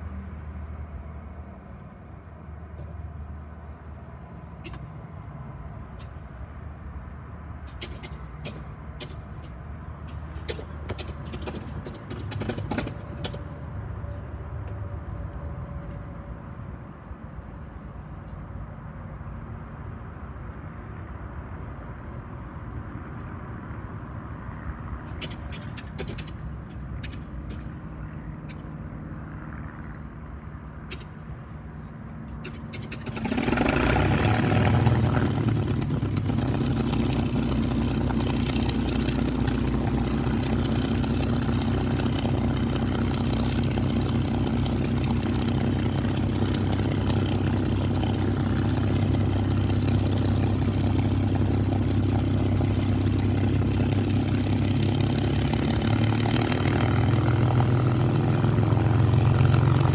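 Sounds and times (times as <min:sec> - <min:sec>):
piston aircraft engine starting: 0:32.3 - 0:59.9.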